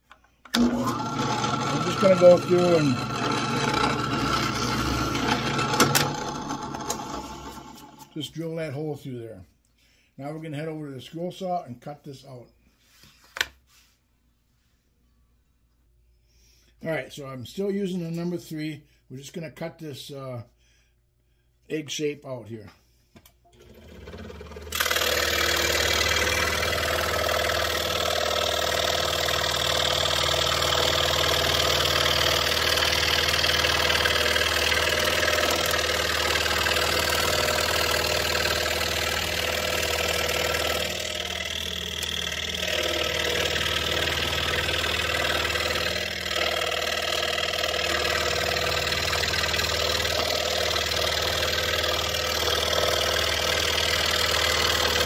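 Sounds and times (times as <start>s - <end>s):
scroll saw cutting wood: 0.5s - 8.2s, 23.6s - 55.0s.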